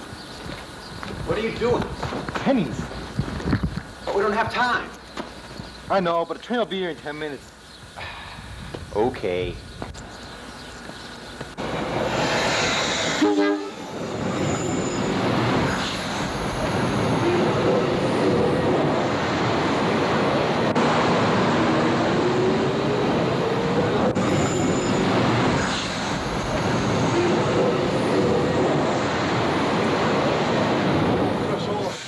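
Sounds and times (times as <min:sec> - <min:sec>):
train rumbling on rails: 0:00.0 - 0:05.9, 0:08.0 - 0:32.0
drawn-out rising tones: 0:11.5 - 0:31.4
train horn blast: 0:13.1 - 0:13.8.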